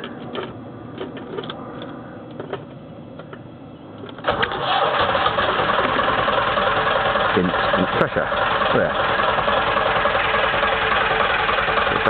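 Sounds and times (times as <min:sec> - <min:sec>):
diesel engine starting and running: 0:04.1 - 0:12.0.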